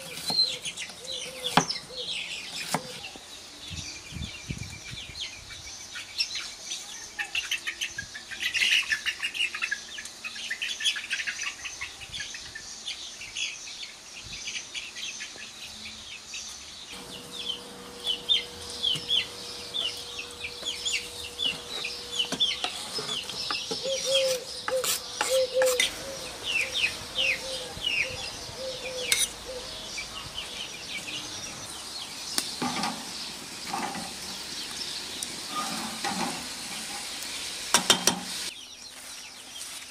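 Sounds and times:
small birds chirping: 0.0 - 39.9
chickens clucking: 17.0 - 38.5.

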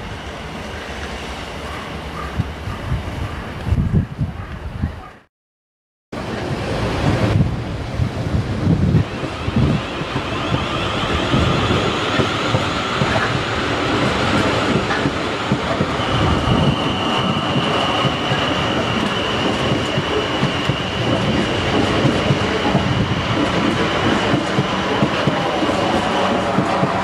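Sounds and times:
train wheels rumbling on rails: 6.2 - 27.0
high-pitched squeal: 9.0 - 15.0, 15.8 - 27.0.

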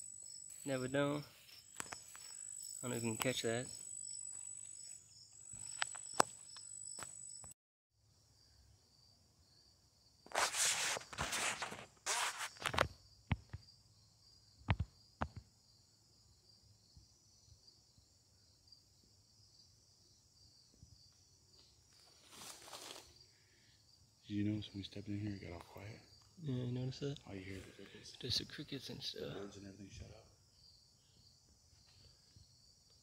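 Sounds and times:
crickets chirring: 0.0 - 33.0
footsteps: 0.5 - 7.1, 10.3 - 13.6.

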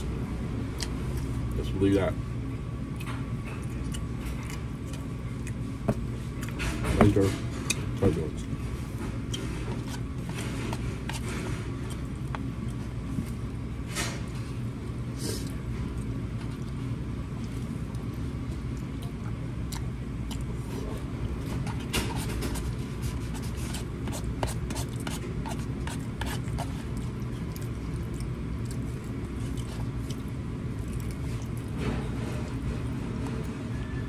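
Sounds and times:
steady low hum: 0.0 - 34.0
chewing: 2.9 - 6.8, 7.5 - 13.5, 15.4 - 22.8, 24.8 - 33.5.

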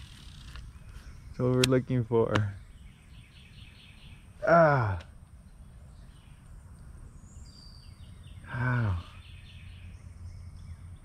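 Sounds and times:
low background noise: 0.0 - 11.0
faint bird chirps: 0.1 - 11.0
man groaning in disappointment: 4.4 - 5.1.

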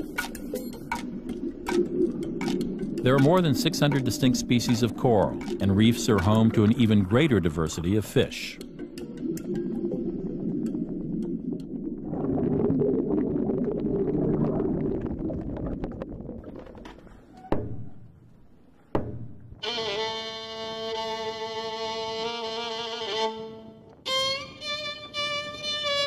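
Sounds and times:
muffled rushing water underwater: 0.0 - 18.6
violin bowing held note: 19.6 - 26.0.

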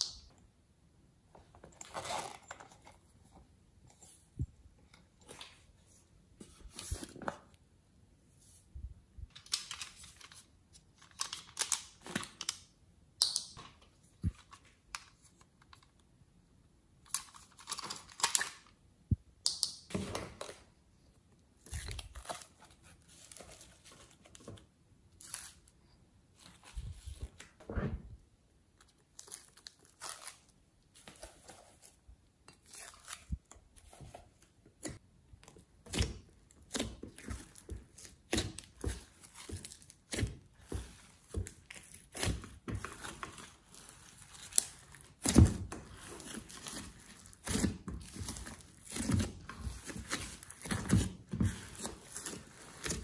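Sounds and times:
slime crackling and crinkling: 21.6 - 24.4, 28.7 - 53.0.

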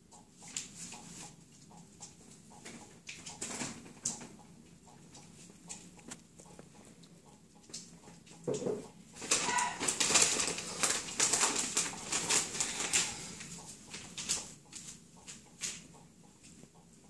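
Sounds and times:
newspaper crinkling and rustling: 9.2 - 15.0.

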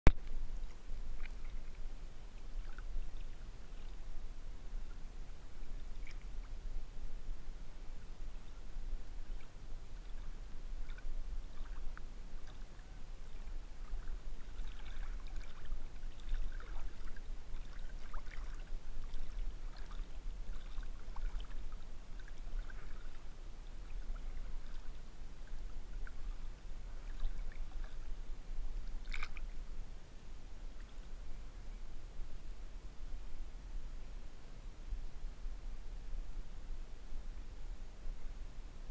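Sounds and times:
water lapping and splashing: 0.1 - 29.6
low steady rumble: 0.1 - 38.9.

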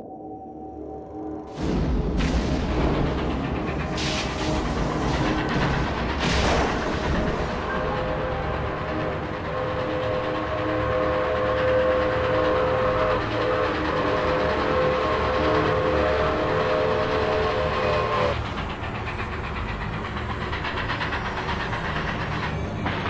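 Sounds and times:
train rumble: 1.4 - 23.0
steam train whistle: 7.7 - 18.4.

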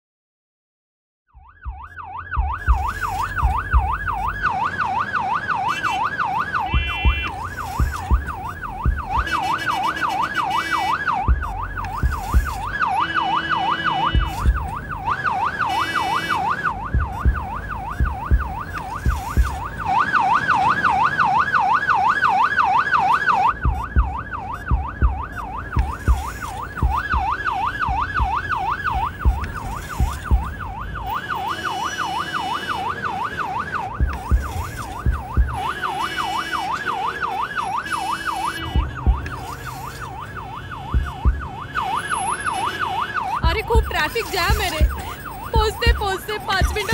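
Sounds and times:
ambulance siren wailing: 1.3 - 46.9
deep thumps: 1.5 - 4.4, 6.6 - 9.3, 11.2 - 12.9, 14.1 - 15.2, 16.5 - 19.8, 23.5 - 31.0, 34.0 - 35.8, 38.6 - 41.8
vehicle horn honks: 6.7 - 7.3.

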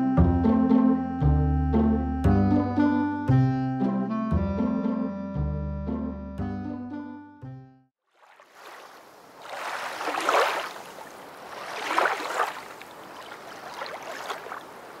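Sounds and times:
sea waves washing in: 8.1 - 15.0.

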